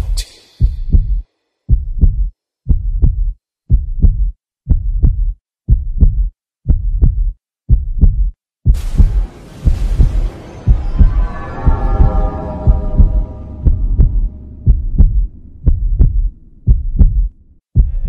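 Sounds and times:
heartbeat thumps: 0.0 - 18.0
hissing noise: 8.8 - 14.3.

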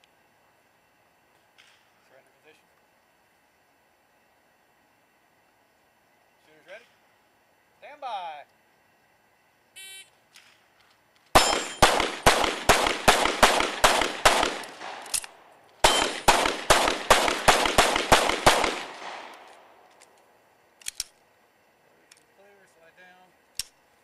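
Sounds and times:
gunshot echo: 11.4 - 15.1, 15.8 - 19.6
pistol shots: 11.4 - 19.7.

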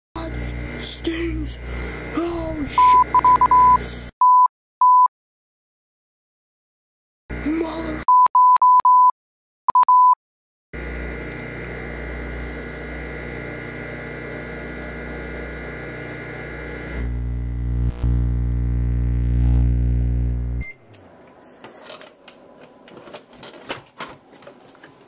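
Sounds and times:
microwave oven humming: 0.2 - 4.0, 10.8 - 21.3
microwave keypad beeps: 2.8 - 5.1, 8.1 - 9.1, 9.7 - 10.2.

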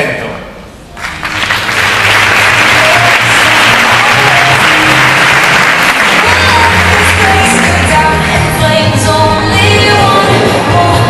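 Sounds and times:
audience applauding: 1.0 - 8.6
music with bass line: 2.4 - 11.0.

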